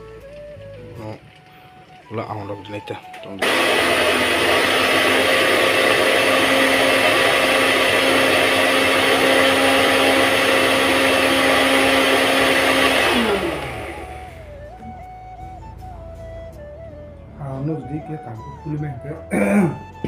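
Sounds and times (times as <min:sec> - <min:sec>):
mixer grinder motor whine: 0:02.0 - 0:15.1.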